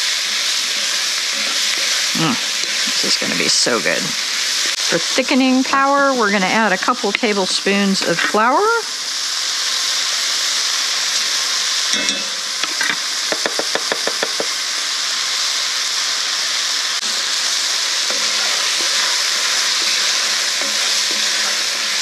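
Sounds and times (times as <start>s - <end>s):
food sizzling in a pot: 0.0s - 22.0s
mixture being stirred: 17.2s - 22.0s.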